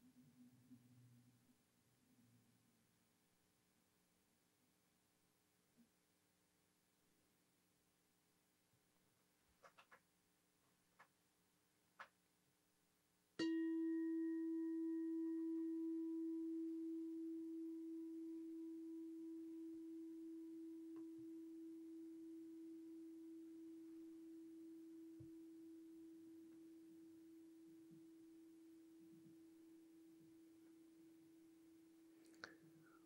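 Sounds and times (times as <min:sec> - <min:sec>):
meditation bell ringing: 0:13.4 - 0:23.2.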